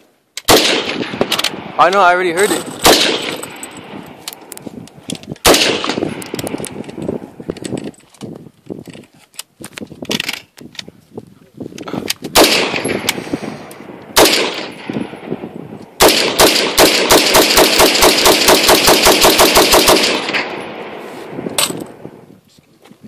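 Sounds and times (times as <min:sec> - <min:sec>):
rifle shots: 0:00.4 - 0:04.2, 0:05.4 - 0:06.9, 0:12.3 - 0:13.2, 0:13.8 - 0:22.0.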